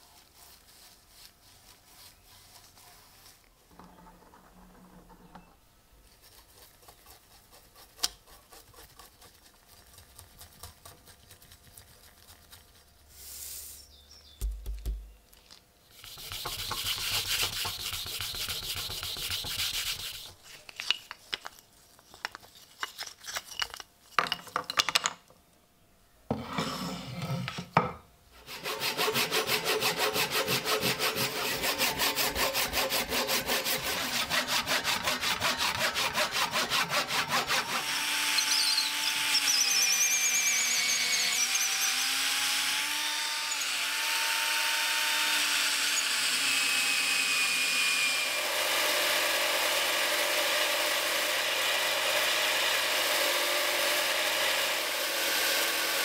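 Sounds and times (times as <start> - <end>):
saw cutting wood: 15.9 - 20.4, 28.4 - 56.0
wooden pieces knocking: 20.5 - 21.5, 22.1 - 25.3
wood lathe cutting: 28.5 - 56.0.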